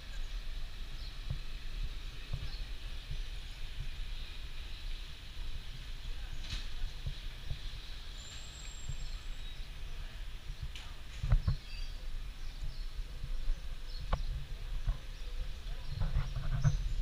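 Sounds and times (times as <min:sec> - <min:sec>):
low uneven rumble: 0:00.0 - 0:17.0
faint bird chirps: 0:06.0 - 0:10.2.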